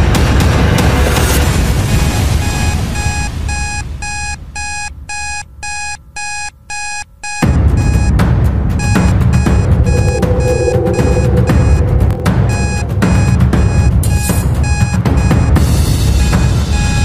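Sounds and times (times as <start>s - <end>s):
music: 0.0s - 4.4s, 7.4s - 17.0s
alarm clock beeping: 2.0s - 8.2s, 8.8s - 17.0s.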